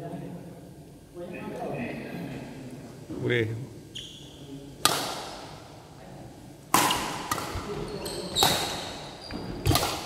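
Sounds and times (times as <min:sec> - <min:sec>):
racket hitting shuttlecock: 0:04.8 - 0:05.6, 0:06.7 - 0:10.0.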